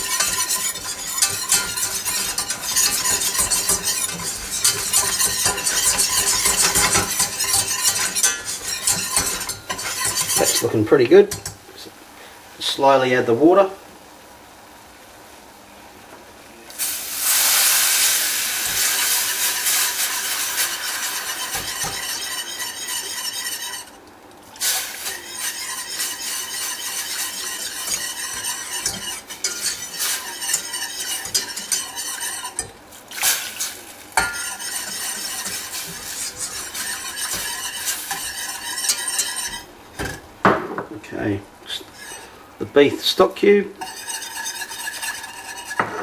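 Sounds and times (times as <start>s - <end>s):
water sizzling in hot roux: 0.0s - 10.8s, 16.7s - 40.4s
wire whisk stirring sauce: 0.0s - 11.6s, 18.4s - 40.1s, 41.8s - 42.4s, 43.8s - 46.0s.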